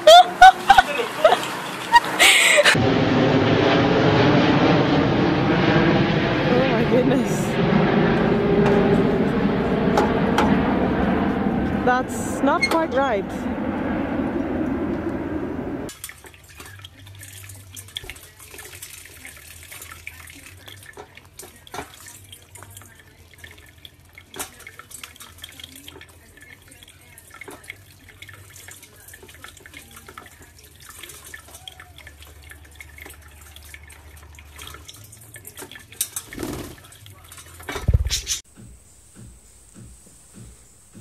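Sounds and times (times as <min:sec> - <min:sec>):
birds splashing and fluttering: 0:00.0 - 0:02.8, 0:15.9 - 0:38.4
small sharp splashes and clicks: 0:15.9 - 0:37.9
tap running into colander: 0:15.9 - 0:37.9.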